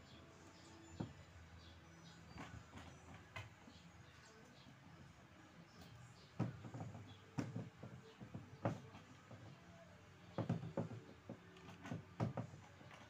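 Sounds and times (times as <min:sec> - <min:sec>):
plastic and metal parts knocking: 0:06.3 - 0:09.7, 0:10.3 - 0:13.0.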